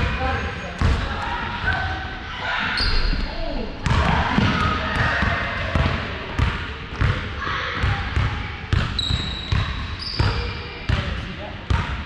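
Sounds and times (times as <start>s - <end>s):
sneaker squeaks on floor: 2.7s - 3.3s, 8.8s - 11.0s.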